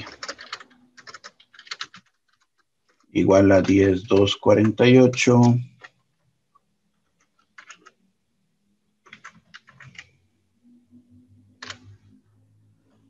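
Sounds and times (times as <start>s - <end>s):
computer keyboard keystrokes: 0.0s - 6.0s, 7.1s - 8.0s, 9.0s - 10.1s, 11.6s - 12.0s.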